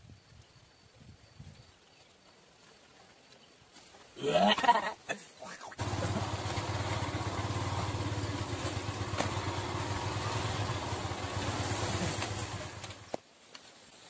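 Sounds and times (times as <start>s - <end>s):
small motorcycle engine running: 5.8s - 13.1s.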